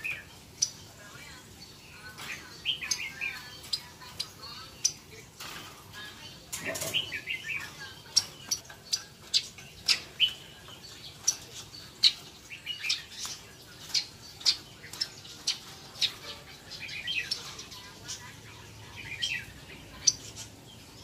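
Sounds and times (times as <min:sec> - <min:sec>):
birds chirping sharply: 0:00.0 - 0:21.0.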